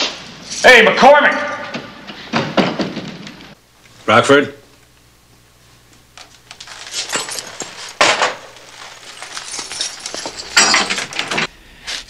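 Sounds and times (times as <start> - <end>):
dishes clattering: 9.6 - 11.5.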